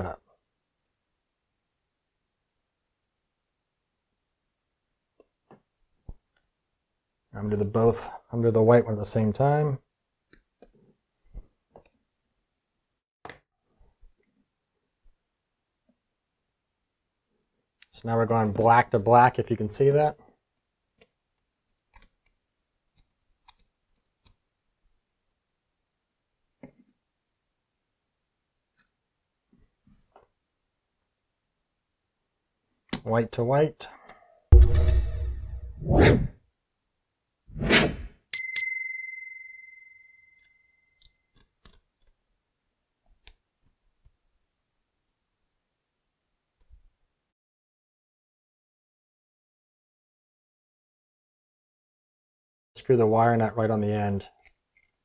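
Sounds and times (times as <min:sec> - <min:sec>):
small clicks of wire handling: 0:21.0 - 0:24.4, 0:41.0 - 0:42.2, 0:54.4 - 0:55.0
notification ding: 0:34.6 - 0:35.7.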